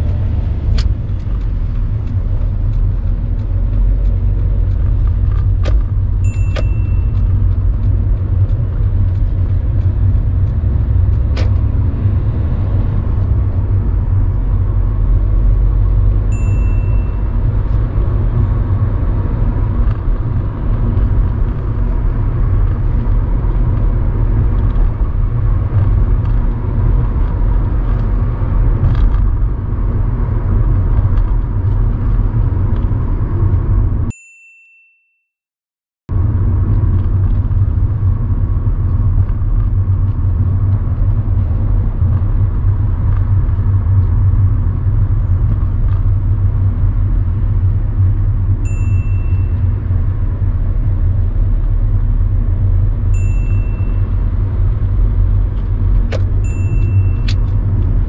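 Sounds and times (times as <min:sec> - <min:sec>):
car engine and road noise: 0:00.0 - 0:34.2, 0:36.1 - 0:58.0
short high beeps: 0:06.3 - 0:07.2, 0:16.4 - 0:17.3, 0:48.7 - 0:49.6, 0:53.2 - 0:54.1, 0:56.5 - 0:57.4.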